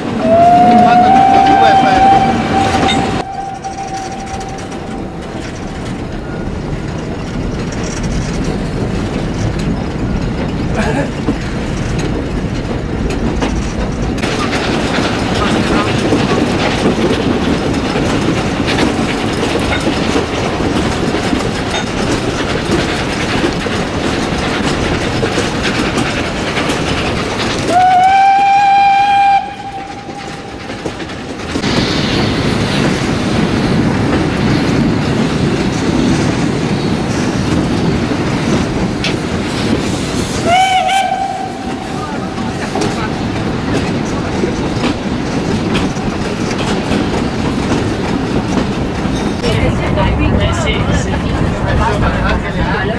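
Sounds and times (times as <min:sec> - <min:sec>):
carriages rattling over rail joints: 0:00.0 - 0:52.9
steam locomotive whistle: 0:00.2 - 0:05.5, 0:27.7 - 0:30.6, 0:40.4 - 0:42.0.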